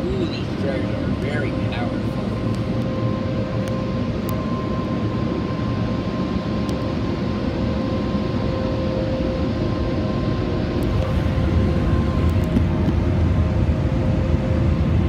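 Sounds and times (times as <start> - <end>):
car wash blower dryers: 0.0 - 3.5, 8.5 - 15.0.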